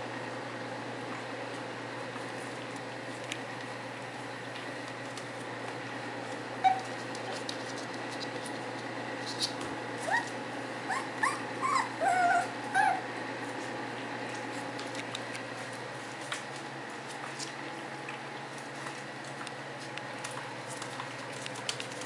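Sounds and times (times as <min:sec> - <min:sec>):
puppies eating kibble clicks: 0:02.5 - 0:03.8, 0:06.7 - 0:09.7, 0:14.2 - 0:22.0
puppy yelp: 0:06.6 - 0:07.0, 0:10.0 - 0:13.1
puppies whining: 0:06.6 - 0:07.5, 0:10.0 - 0:13.2.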